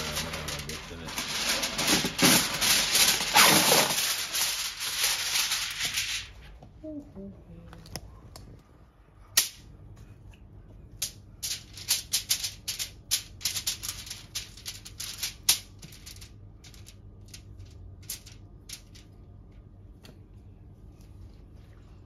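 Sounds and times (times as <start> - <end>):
aluminium foil crinkling: 0.0 - 6.5, 11.0 - 19.1.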